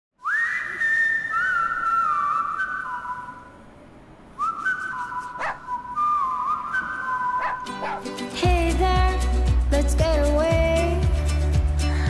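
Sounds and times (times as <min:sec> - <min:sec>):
person whistling a slow tune: 0:00.2 - 0:03.5, 0:04.4 - 0:07.8.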